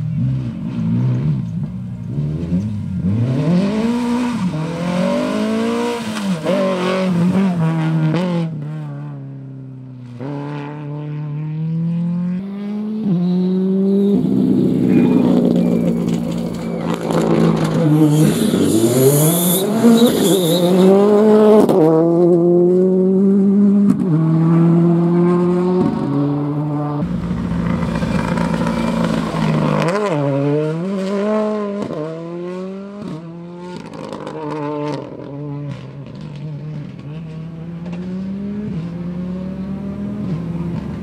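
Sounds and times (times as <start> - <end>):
rally car engine revving: 0.0 - 41.0
tyre squeal: 13.2 - 21.2.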